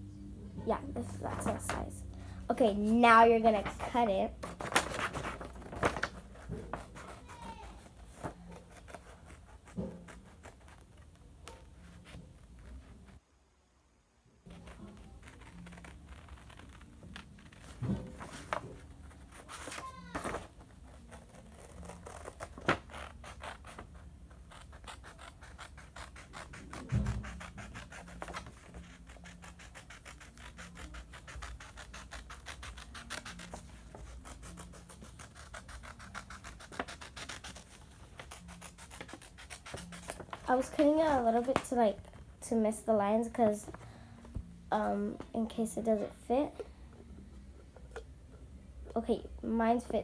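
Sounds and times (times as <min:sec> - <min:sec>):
scissors snipping paper: 0:24.4 - 0:40.6.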